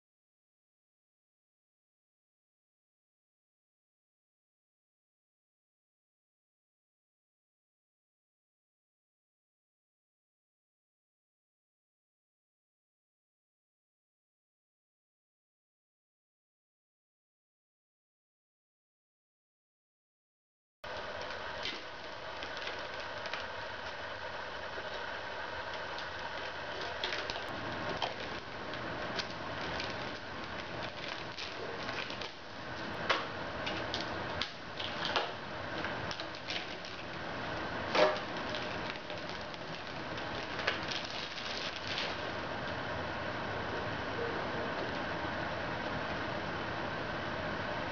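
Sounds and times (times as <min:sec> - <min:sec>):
steady background hum: 0:20.8 - 0:47.9.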